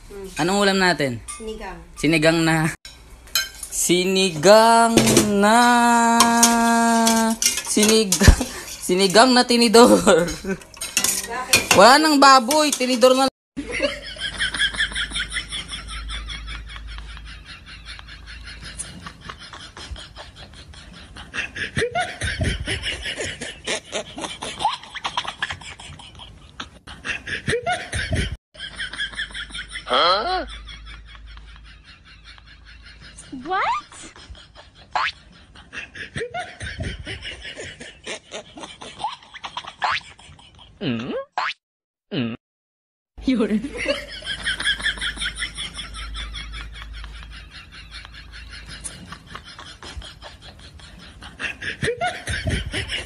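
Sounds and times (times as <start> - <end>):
steel pot and ladle clinking: 2.9 - 3.8, 6.2 - 9.5, 10.3 - 13.0
people laughing: 13.6 - 40.8, 43.5 - 53.0.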